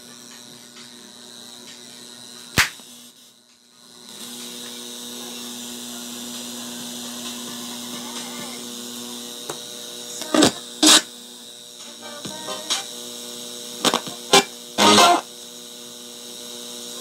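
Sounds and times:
amplifier humming through speaker: 0:00.0 - 0:17.0
loud pop: 0:02.6 - 0:02.8.

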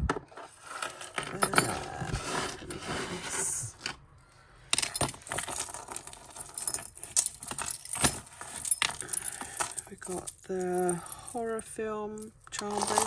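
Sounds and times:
metal jewellery clinking: 0:00.7 - 0:02.1, 0:04.7 - 0:13.0.

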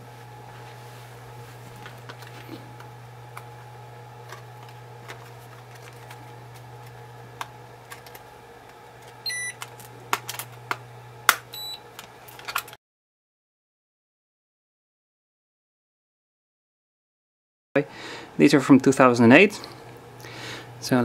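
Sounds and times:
steady low hum: 0:00.0 - 0:12.8, 0:17.8 - 0:21.0
plastic blister pack crackling: 0:01.7 - 0:12.8
short electronic beep: 0:09.3 - 0:09.5.

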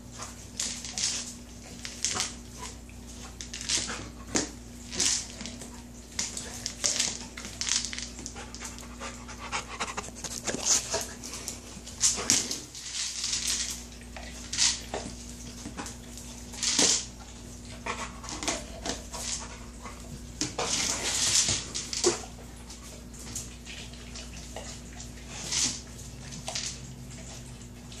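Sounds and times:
kibble rattling inside toy: 0:06.2 - 0:08.9, 0:10.2 - 0:17.1
dog panting and sniffing: 0:08.2 - 0:12.8, 0:17.5 - 0:26.1.

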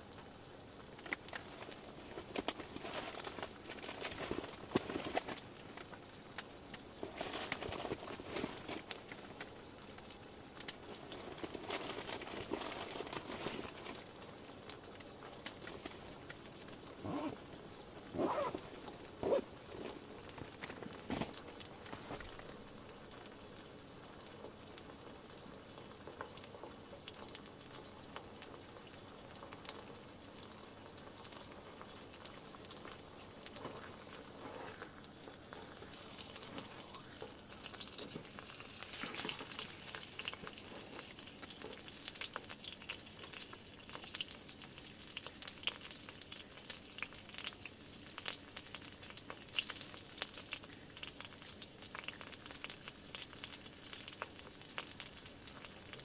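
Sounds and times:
meat sizzling with crackling pops: 0:00.0 - 0:56.0.

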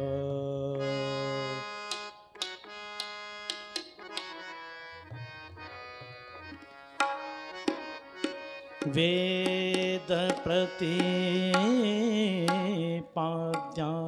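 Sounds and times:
harmonium holding notes: 0:00.1 - 0:13.8
tabla strokes: 0:07.0 - 0:12.9.

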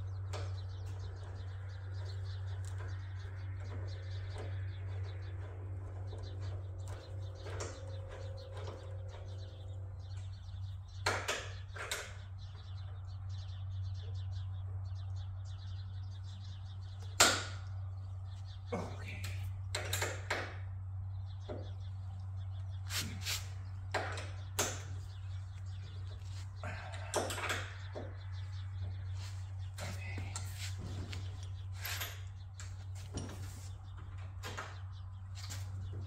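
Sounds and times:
steady low hum: 0:00.0 - 0:36.0
metallic clicks and knocks: 0:00.1 - 0:12.4, 0:19.6 - 0:20.8, 0:26.9 - 0:28.4.

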